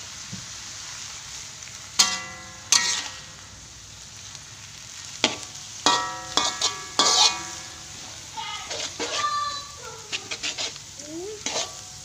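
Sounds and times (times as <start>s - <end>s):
stir-frying sizzle: 0.0s - 12.0s
metal spatula clanking on wok: 2.0s - 3.4s, 5.2s - 8.0s, 8.6s - 9.3s, 11.4s - 12.0s.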